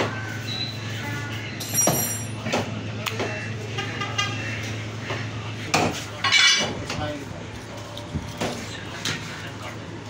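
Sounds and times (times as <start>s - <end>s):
vehicle horn toot: 3.6s - 4.6s.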